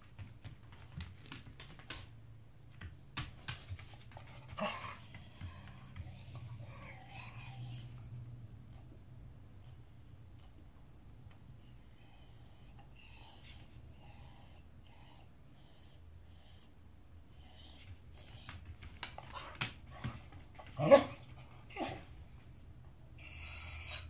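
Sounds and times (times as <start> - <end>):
dog whining and huffing: 4.2 - 8.0, 11.6 - 18.7, 23.2 - 24.0
dog barking: 20.8 - 21.2.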